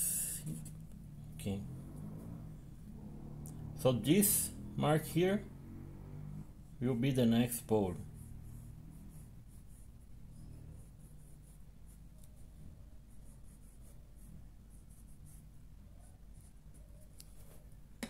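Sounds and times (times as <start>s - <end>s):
marker pen scratching on paper: 0.2s - 1.0s, 7.4s - 17.8s.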